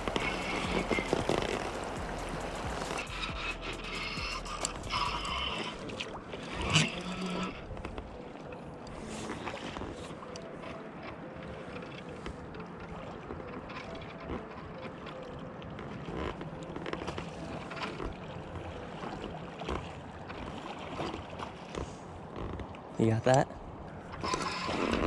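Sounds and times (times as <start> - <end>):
wind on microphone: 0.0 - 5.2
river water flowing: 0.0 - 25.0.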